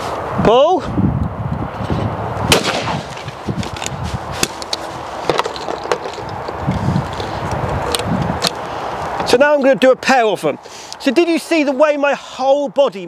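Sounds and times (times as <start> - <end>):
shotgun shot: 2.5 - 3.2.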